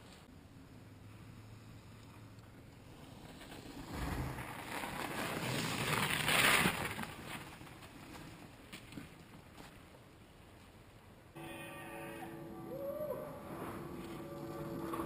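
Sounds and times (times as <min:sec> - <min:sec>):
bike tyres rolling over snow: 0:02.2 - 0:10.0, 0:11.4 - 0:15.0.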